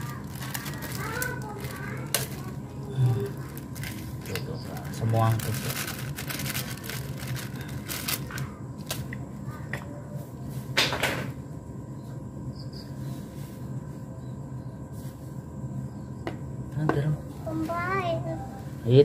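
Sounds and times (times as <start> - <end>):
sachet rustle: 0.0 - 2.6, 3.3 - 9.1
steady low hum: 0.0 - 19.0.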